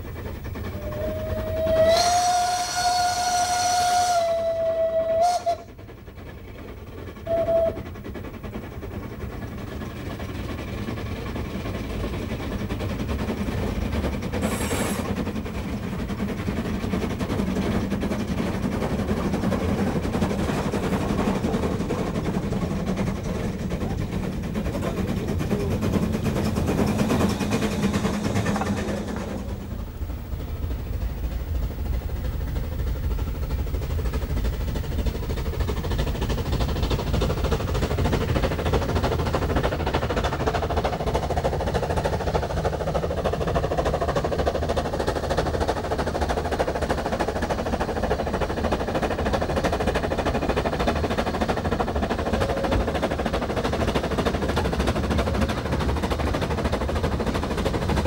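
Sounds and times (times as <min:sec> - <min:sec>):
steam locomotive running clatter: 0:00.0 - 0:58.0
steam locomotive whistle: 0:00.7 - 0:05.7, 0:07.2 - 0:07.8, 0:52.2 - 0:52.9.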